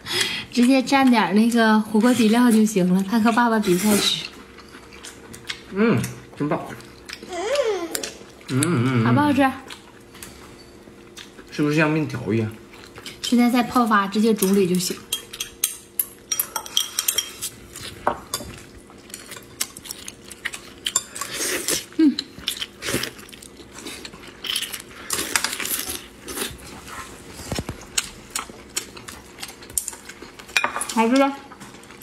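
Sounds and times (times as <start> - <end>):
chopsticks clinking against bowls: 14.4 - 21.4.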